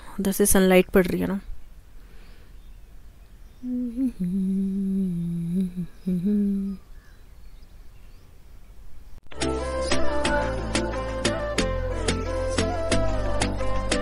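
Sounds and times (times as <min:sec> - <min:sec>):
woman humming: 0:03.6 - 0:06.9
background music: 0:09.3 - 0:14.0.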